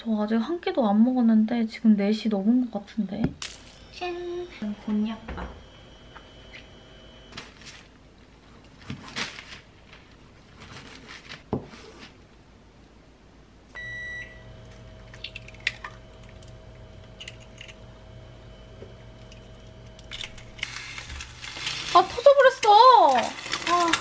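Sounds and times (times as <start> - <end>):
steady electrical hum: 0.0 - 24.0
cooktop electronic beep: 13.8 - 16.5.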